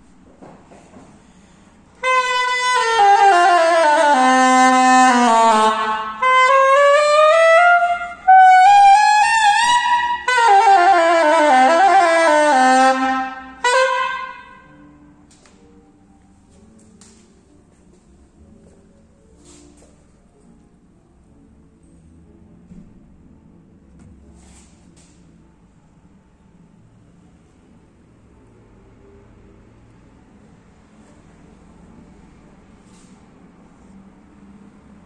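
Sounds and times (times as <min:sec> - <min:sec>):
single-reed woodwind solo: 0:02.0 - 0:14.9.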